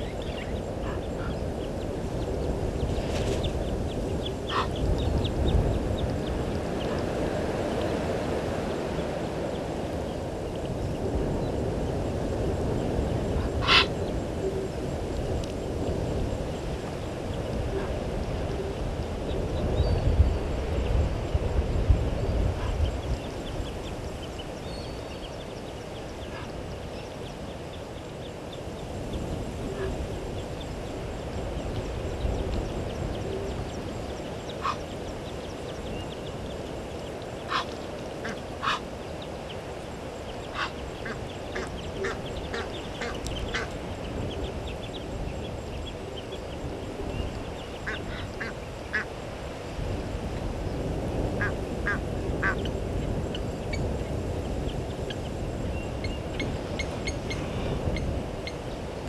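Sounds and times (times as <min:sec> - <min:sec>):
short sharp animal calls: 0:13.6 - 0:13.9.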